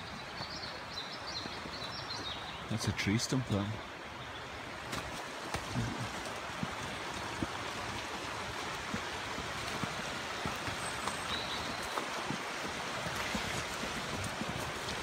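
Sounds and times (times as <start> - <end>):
river rushing over rapids: 4.8 - 15.0.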